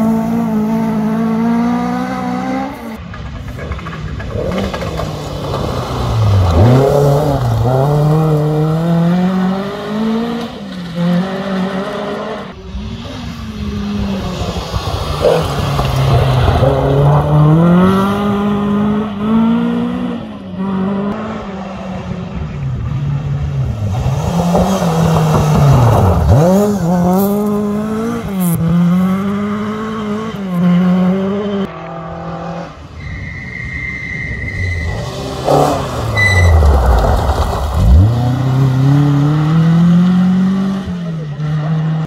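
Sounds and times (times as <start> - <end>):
rally car engine revving: 0.0 - 33.0, 34.4 - 42.0
short high whistle-like tone: 36.1 - 36.7.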